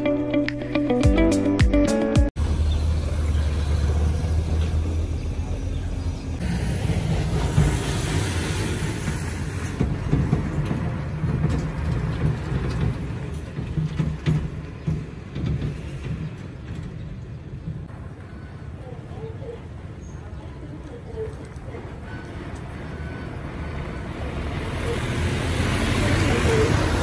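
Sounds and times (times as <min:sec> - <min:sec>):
dump truck driving past: 0:02.4 - 0:18.8, 0:22.3 - 0:27.0.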